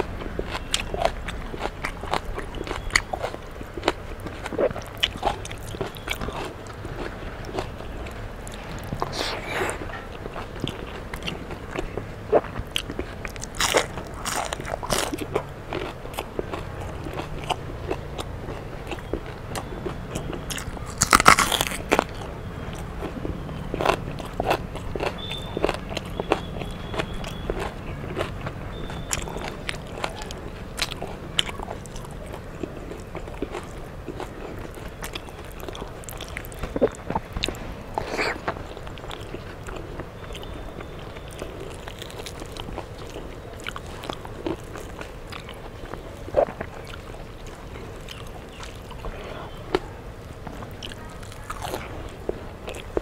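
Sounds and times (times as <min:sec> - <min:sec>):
person chewing crunchy food: 0:00.0 - 0:53.0
mouth clicks: 0:00.4 - 0:15.4.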